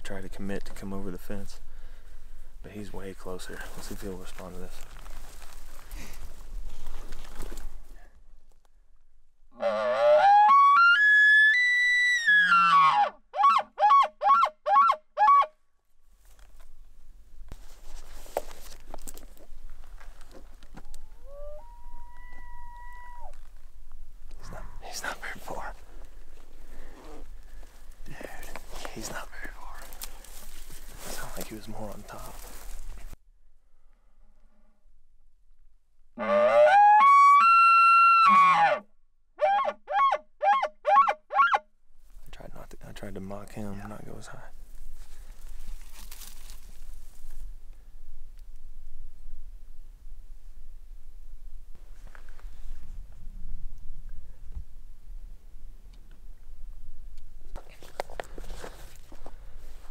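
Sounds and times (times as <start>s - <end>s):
elk bugle call: 9.5s - 15.6s, 21.2s - 23.4s, 36.2s - 41.6s.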